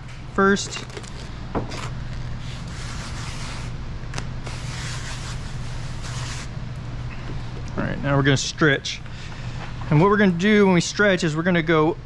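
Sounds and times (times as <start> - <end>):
steady low hum: 0.0 - 12.0
plastic film rustling: 0.7 - 3.6.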